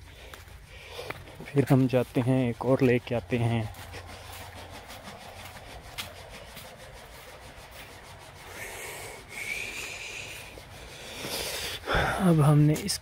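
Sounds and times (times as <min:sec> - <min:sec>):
leaves rustling against phone: 0:00.0 - 0:13.0.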